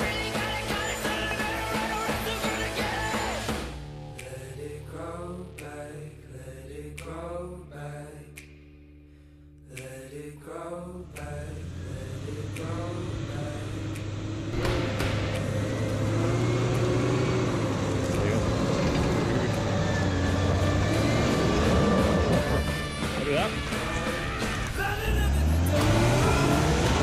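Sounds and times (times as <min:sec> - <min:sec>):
song with singing voice: 0:00.0 - 0:09.0, 0:09.6 - 0:27.0
vehicle engine climbing: 0:11.0 - 0:27.0.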